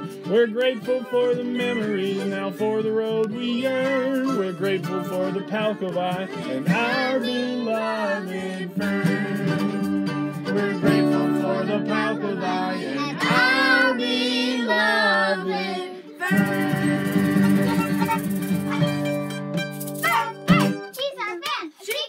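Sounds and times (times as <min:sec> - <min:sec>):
violin: 0:00.0 - 0:20.8
acoustic guitar strumming: 0:00.0 - 0:21.0
children singing: 0:05.0 - 0:18.2.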